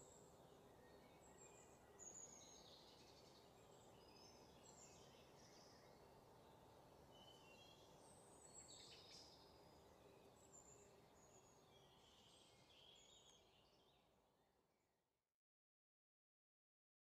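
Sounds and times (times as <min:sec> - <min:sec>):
low steady hiss: 0:00.0 - 0:15.1.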